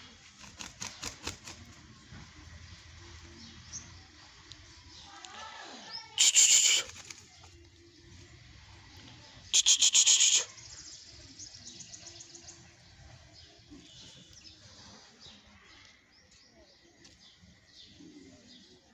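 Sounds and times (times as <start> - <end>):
faint bird chirping: 0.0 - 18.9
harsh pulsed bird call: 6.2 - 7.2, 9.5 - 10.7.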